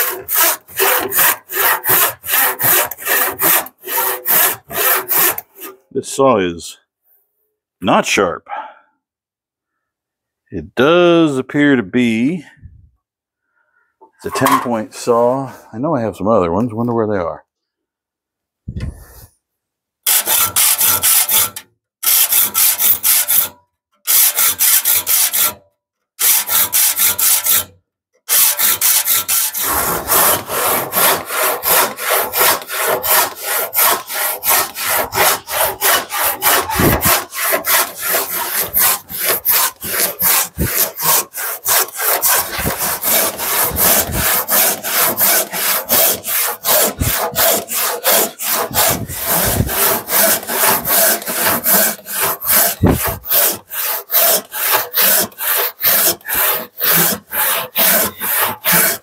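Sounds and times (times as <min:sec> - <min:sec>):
handsaw sawing a board: 0:00.0 - 0:05.8, 0:20.0 - 0:25.6, 0:26.2 - 0:27.7, 0:28.3 - 0:59.0.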